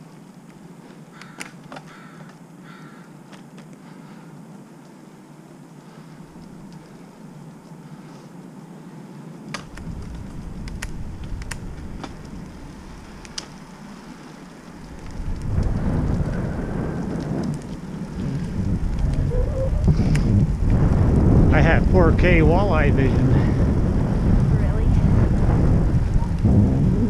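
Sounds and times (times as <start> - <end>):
wind buffeting microphone: 9.5 - 27.0.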